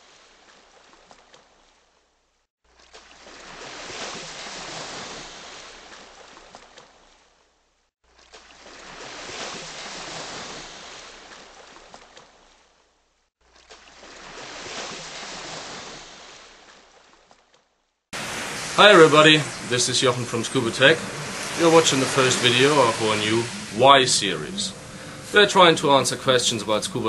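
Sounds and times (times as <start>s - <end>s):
ocean surf washing in: 18.2s - 27.0s.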